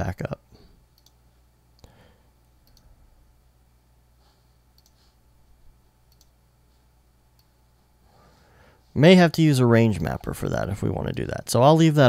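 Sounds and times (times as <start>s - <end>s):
low steady hum: 0.0s - 12.0s
computer mouse clicks: 1.0s - 1.2s, 2.6s - 2.9s, 4.8s - 5.0s, 6.1s - 6.4s.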